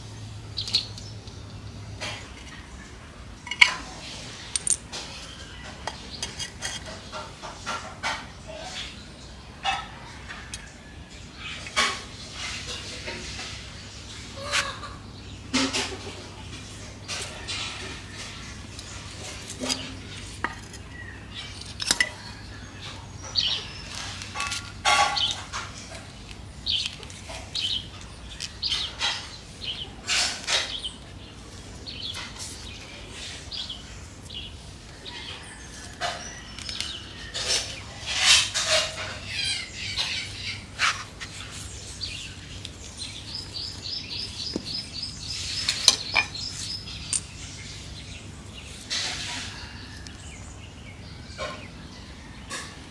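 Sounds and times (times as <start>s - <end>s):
birds chirping: 0.0s - 52.9s
metal tools scraping tile and pot: 3.5s - 8.9s, 17.0s - 26.0s, 35.4s - 42.2s.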